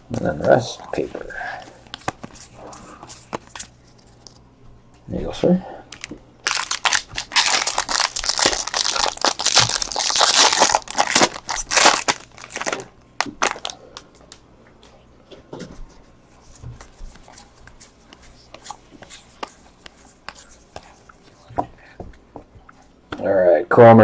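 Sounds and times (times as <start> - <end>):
foil wrapper crinkling: 5.9 - 13.8.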